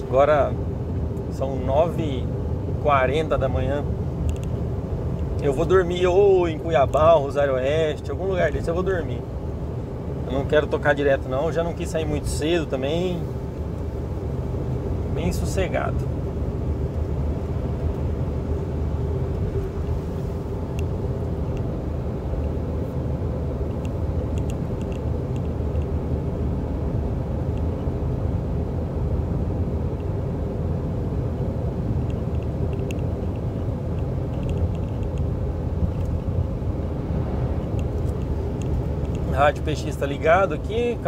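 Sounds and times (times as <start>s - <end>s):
engine and tyre drone in car cabin: 0.0s - 41.0s.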